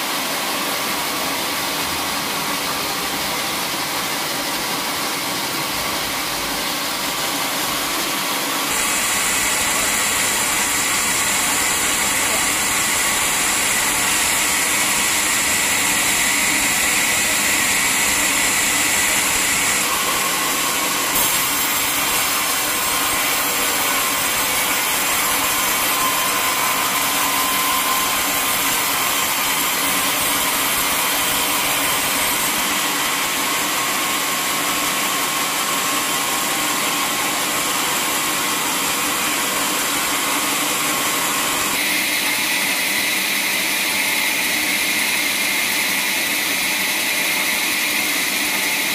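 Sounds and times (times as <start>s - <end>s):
band saw cutting a log: 0.0s - 48.9s.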